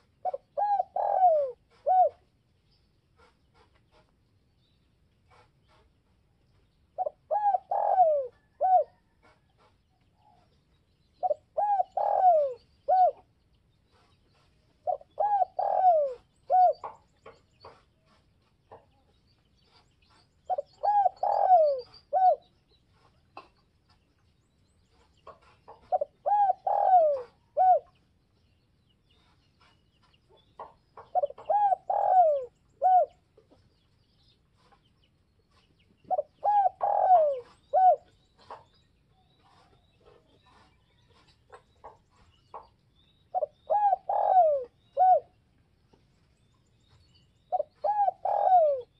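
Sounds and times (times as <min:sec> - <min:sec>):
dove cooing: 0:00.0 - 0:02.2, 0:07.0 - 0:09.7, 0:11.2 - 0:13.3, 0:14.8 - 0:17.0, 0:20.5 - 0:22.5, 0:25.4 - 0:28.0, 0:31.1 - 0:33.2, 0:36.0 - 0:38.6, 0:43.3 - 0:45.3, 0:47.5 - 0:48.9.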